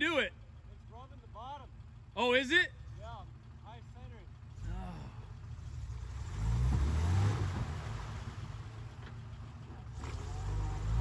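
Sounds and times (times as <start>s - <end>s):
truck engine revving: 4.4s - 11.0s.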